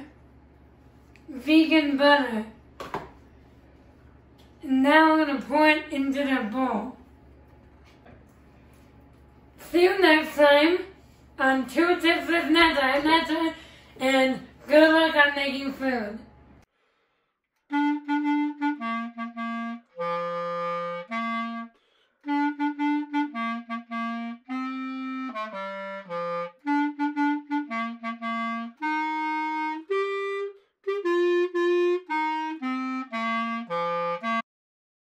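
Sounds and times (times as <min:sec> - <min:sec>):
clarinet melody: 0:17.6 - 0:34.4.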